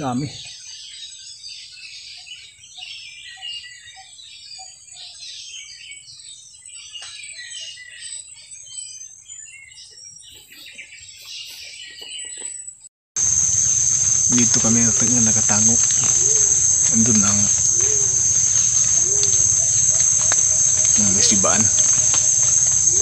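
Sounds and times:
birds chirping and calling: 0.0s - 23.0s
insect drone: 13.2s - 23.0s.

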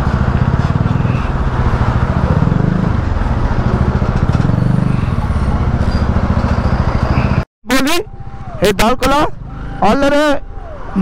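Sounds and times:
motorcycle engine running: 0.0s - 7.4s.

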